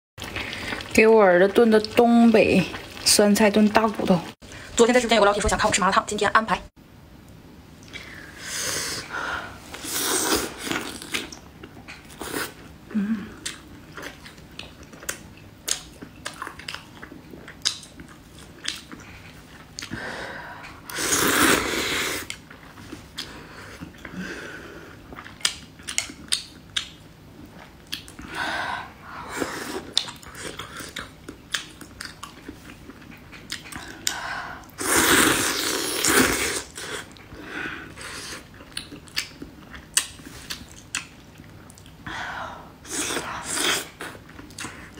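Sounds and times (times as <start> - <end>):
person chewing food: 9.9 - 20.0, 20.7 - 24.2, 24.9 - 28.3, 29.3 - 34.2, 34.8 - 42.0, 42.9 - 44.9.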